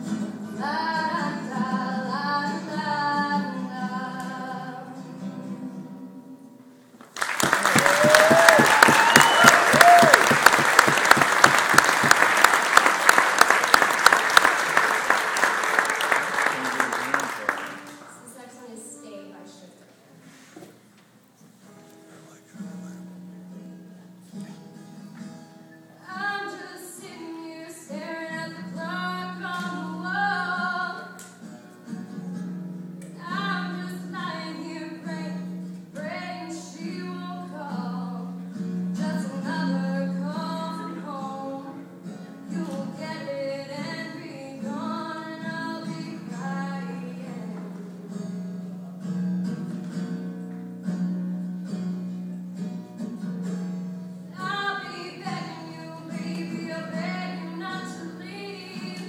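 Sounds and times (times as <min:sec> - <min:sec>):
acoustic guitar: 0:00.0 - 0:59.0
woman singing: 0:00.4 - 0:06.2, 0:26.0 - 0:31.3, 0:33.2 - 0:41.9, 0:42.5 - 0:47.8, 0:54.3 - 0:59.0.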